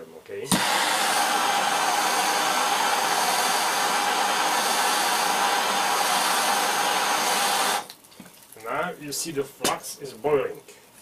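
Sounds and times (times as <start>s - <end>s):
gas torch flame hissing: 0.4s - 7.9s.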